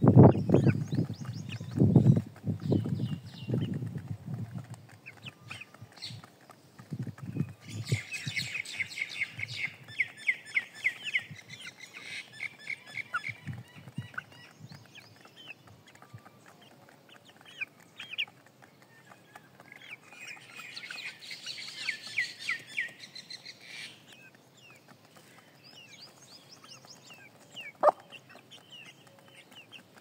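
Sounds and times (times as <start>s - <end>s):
chicks peeping: 0.0s - 30.0s.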